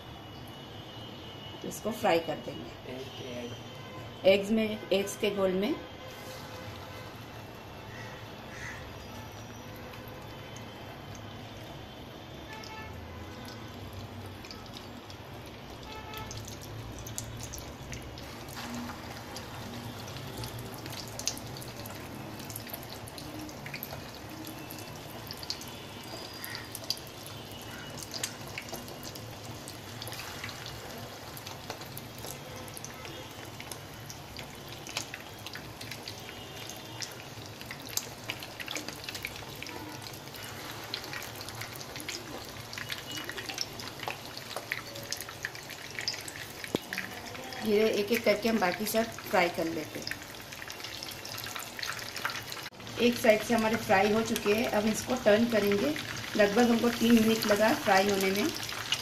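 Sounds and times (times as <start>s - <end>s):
chicken frying in oil: 0.0s - 3.8s, 4.4s - 59.0s
oil crackling and popping: 8.5s - 59.0s.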